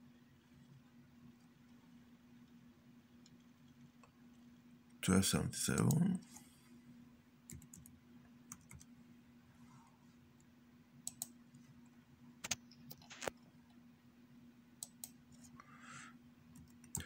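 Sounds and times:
faint hum: 0.0 - 17.0
keyboard keys and mouse clicking: 7.5 - 8.9, 11.0 - 11.4, 16.5 - 17.0.

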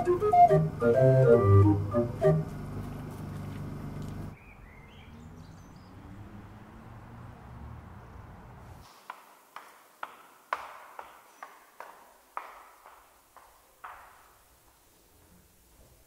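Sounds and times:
mechanical pipe organ tune: 0.0 - 4.4
faint background noise: 0.0 - 16.0.

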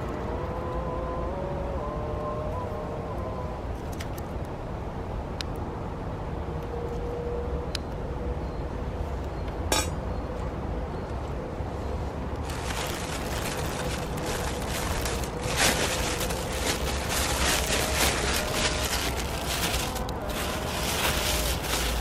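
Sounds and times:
low steady rumble: 11.5 - 22.0.

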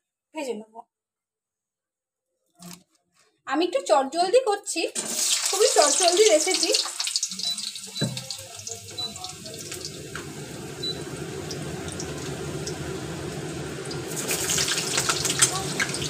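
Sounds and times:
potatoes sizzling in oil: 5.0 - 16.0
knock: 8.0 - 8.2.

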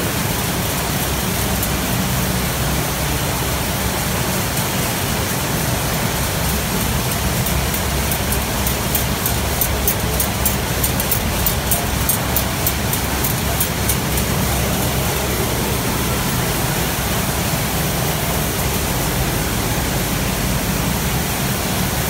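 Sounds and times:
machine rumble: 0.0 - 22.0
water spraying: 0.0 - 22.0
rapid high ticking: 5.6 - 16.4.

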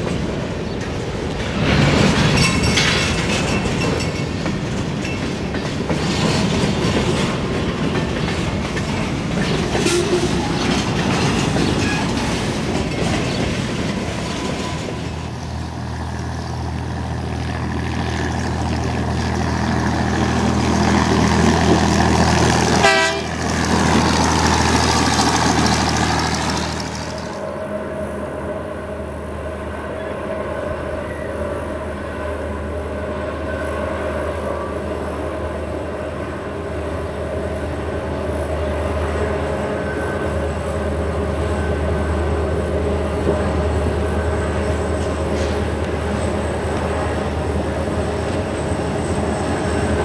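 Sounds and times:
train wheels clacking over rail joints: 0.0 - 15.5, 18.0 - 27.4, 43.2 - 50.0.

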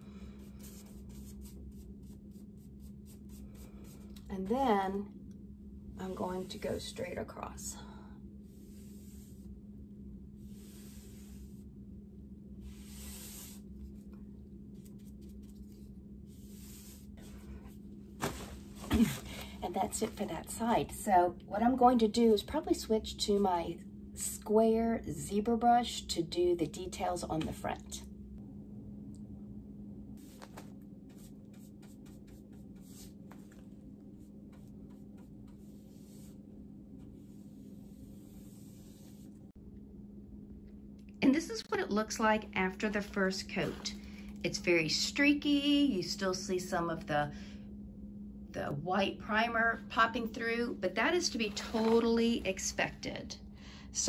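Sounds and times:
low hum: 0.0 - 54.0
paintbrush swishing: 0.4 - 4.2, 8.4 - 9.6, 10.4 - 11.7, 12.6 - 14.1, 14.7 - 17.8, 30.2 - 39.5.

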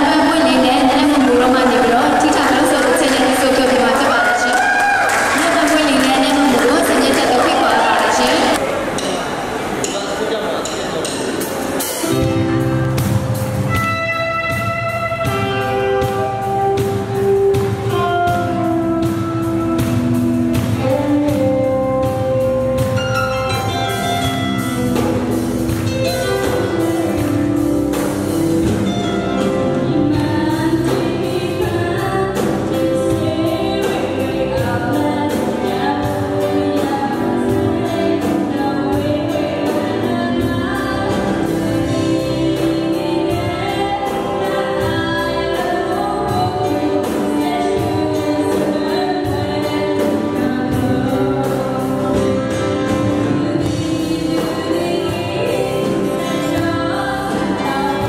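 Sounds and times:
woman singing: 0.0 - 8.6, 23.6 - 58.0
live band playing: 0.0 - 58.0.

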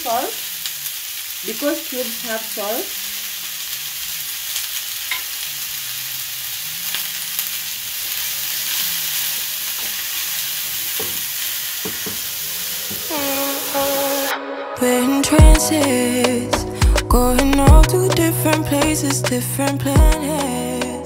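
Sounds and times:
vegetables sizzling in oil: 0.0 - 14.3.

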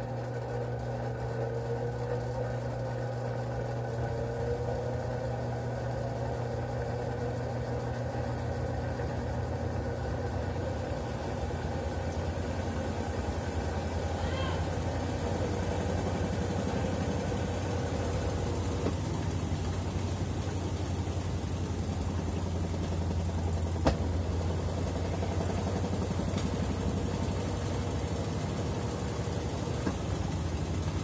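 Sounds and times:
washing machine spinning: 0.0 - 31.0.

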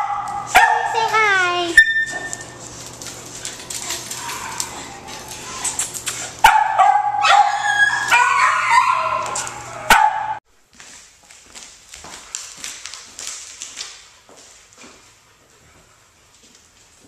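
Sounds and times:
dog barking and yelping: 3.8 - 10.4.

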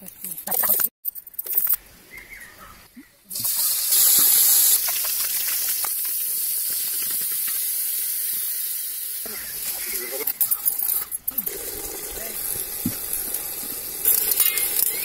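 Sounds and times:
fish frying in hot oil: 3.3 - 9.9, 11.5 - 15.0.

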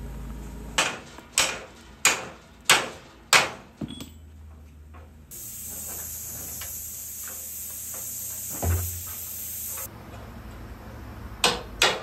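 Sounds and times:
plasma cutter hissing: 5.3 - 9.9.

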